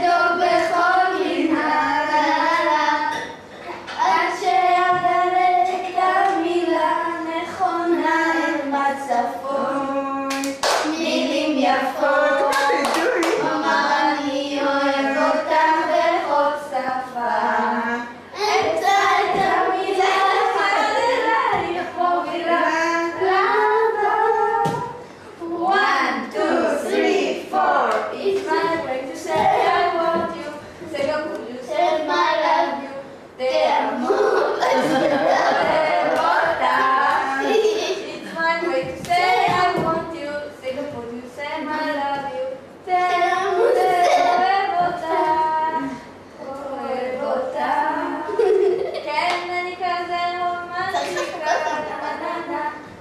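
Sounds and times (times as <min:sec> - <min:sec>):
girl singing: 0:00.0 - 0:03.4, 0:04.0 - 0:53.0
sharp claps: 0:10.3 - 0:10.9, 0:12.5 - 0:13.5.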